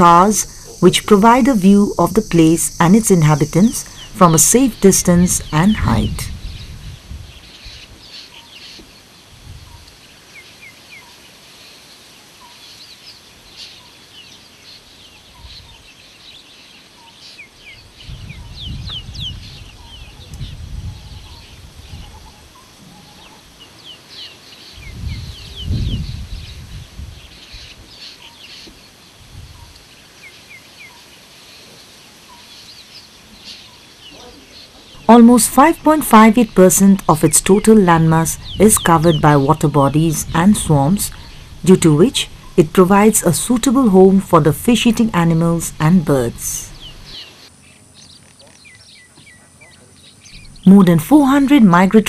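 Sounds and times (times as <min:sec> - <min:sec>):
birds chirping and whistling: 0:00.0 - 0:09.0, 0:12.4 - 0:28.8, 0:32.3 - 0:52.0
low rumbling: 0:34.9 - 0:47.2, 0:50.3 - 0:52.0.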